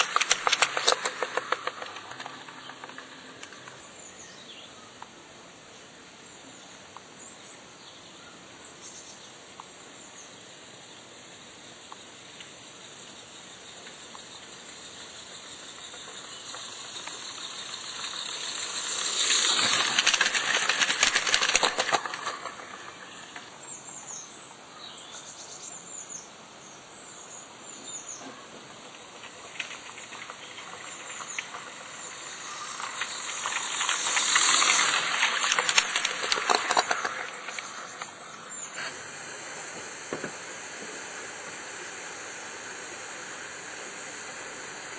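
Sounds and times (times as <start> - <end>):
steam locomotive exhaust chuffs: 0.0 - 4.6, 12.0 - 24.1, 28.4 - 44.9
steam hiss: 0.0 - 5.2, 10.5 - 24.4, 25.9 - 44.9
birds singing: 12.9 - 38.8.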